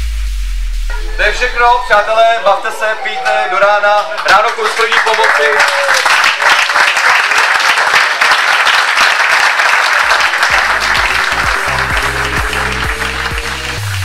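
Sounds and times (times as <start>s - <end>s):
electronic music with pulsing bass: 0.0s - 2.9s, 10.5s - 14.0s
audience applauding: 2.6s - 14.0s.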